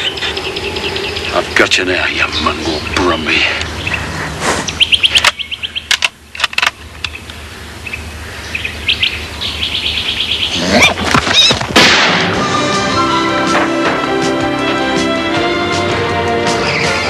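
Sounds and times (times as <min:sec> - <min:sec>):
birds chirping trills: 0:00.0 - 0:11.7, 0:12.4 - 0:17.0
orchestral film music: 0:12.1 - 0:17.0.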